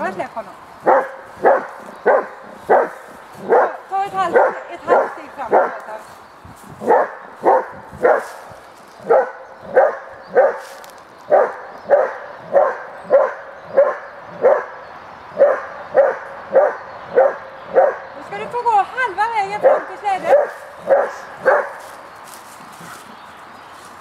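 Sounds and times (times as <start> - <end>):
dog barking: 0.8 - 5.8, 6.8 - 8.4, 9.0 - 10.7, 11.3 - 14.8, 15.4 - 18.1, 19.6 - 21.9.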